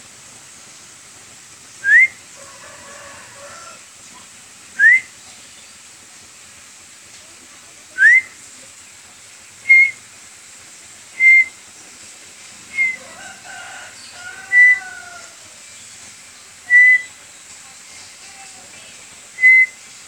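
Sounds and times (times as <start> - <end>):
bird whistling clear notes: 1.8 - 2.2, 4.8 - 5.1, 8.0 - 8.4, 9.6 - 10.0, 11.2 - 11.6, 12.7 - 13.1, 14.0 - 15.2, 16.6 - 17.2, 19.4 - 19.8.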